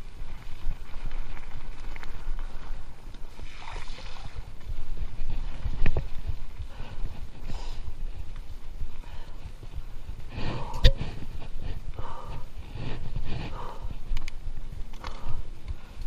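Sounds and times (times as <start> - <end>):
bike tyres rumbling on dirt: 0.0 - 16.0
wind on microphone: 0.0 - 16.0
bike rattling clicks: 13.4 - 16.0.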